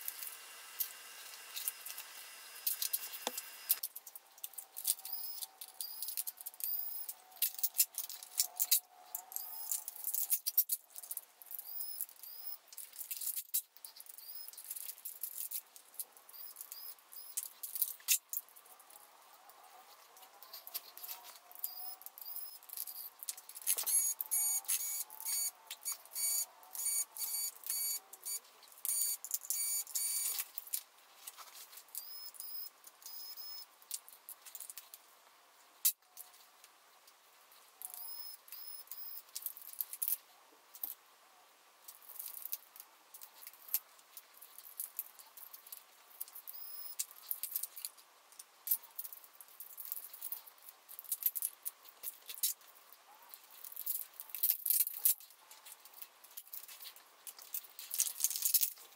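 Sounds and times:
electric screwdriver whirring: 0:00.0 - 0:03.8
clicking and rattling of laptop parts: 0:20.4 - 0:27.9, 0:53.6 - 0:58.9.

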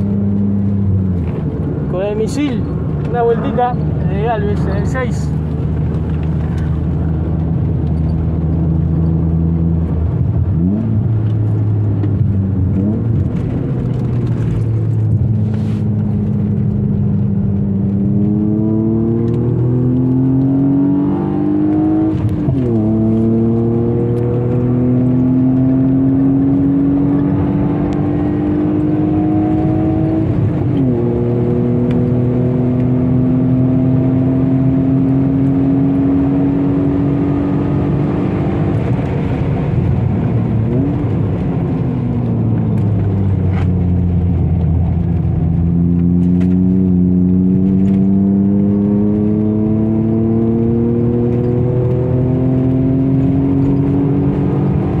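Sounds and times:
car engine accelerating: 0:00.0 - 0:55.0.

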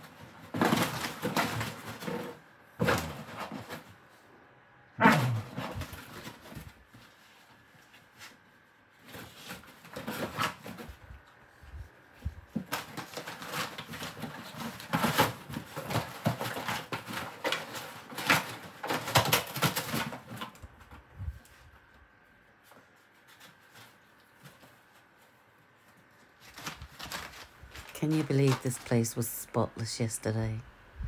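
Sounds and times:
dog tearing cardboard: 0:00.0 - 0:03.9, 0:05.0 - 0:07.1, 0:09.0 - 0:11.0, 0:12.5 - 0:20.6, 0:26.4 - 0:28.8.

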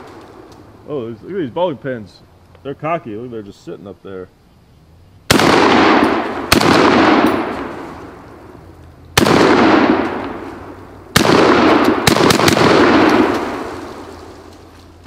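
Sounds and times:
shotgun shots echoing: 0:05.3 - 0:08.5, 0:09.2 - 0:14.5.

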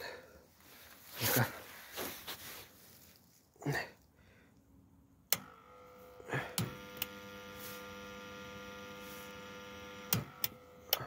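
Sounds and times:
switch clicks: 0:05.3 - 0:05.6.

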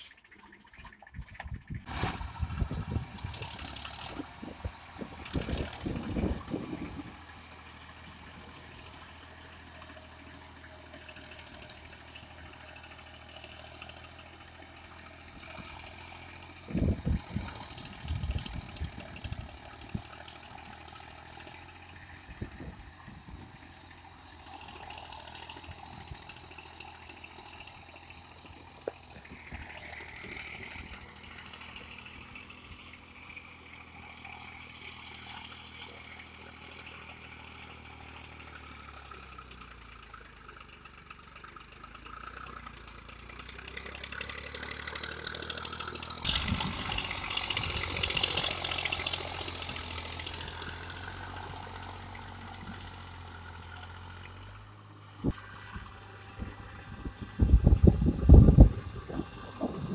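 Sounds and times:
rotavator churning mud and water: 0:00.0 - 0:07.2, 0:43.4 - 0:52.6
tractor diesel engine running: 0:00.0 - 0:59.9.

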